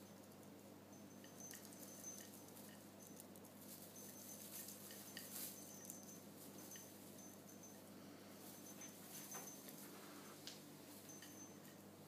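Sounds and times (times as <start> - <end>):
thin high tones: 0.9 - 11.9
kitten rustling through branches: 1.4 - 7.3.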